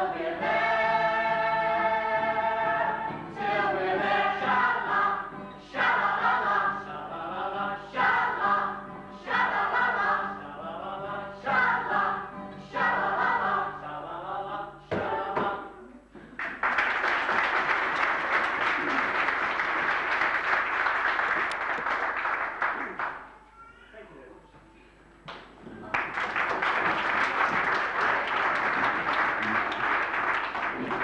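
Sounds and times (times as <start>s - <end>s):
voices singing together: 0.0s - 15.9s
audience applause: 16.4s - 23.3s, 25.8s - 31.0s.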